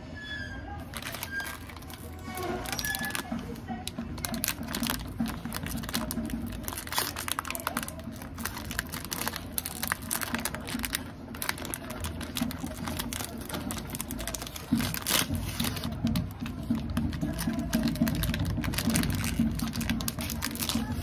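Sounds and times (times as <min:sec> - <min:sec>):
plastic wrapper crinkling: 0:00.8 - 0:21.0.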